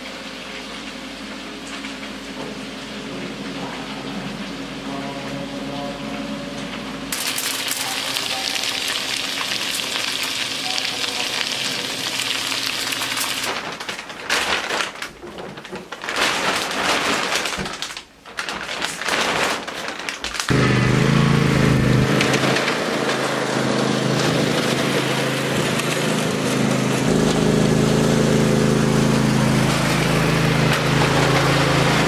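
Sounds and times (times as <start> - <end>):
low hum: 2.8 - 7.2
meat sizzling in a pan: 7.2 - 13.5
aluminium foil crinkling: 7.2 - 20.5.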